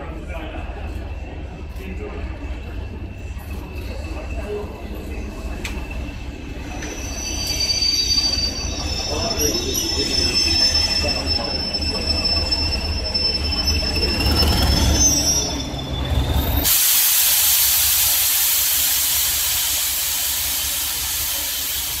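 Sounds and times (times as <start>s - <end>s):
train wheel squeal: 1.1s - 17.0s, 17.6s - 22.0s
loud steady hiss: 16.7s - 22.0s.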